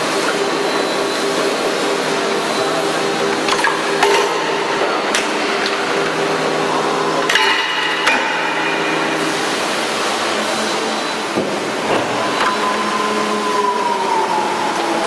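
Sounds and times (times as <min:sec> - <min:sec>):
high whine falling in pitch: 0:00.0 - 0:15.0
sharp metallic clanks: 0:07.2 - 0:09.4.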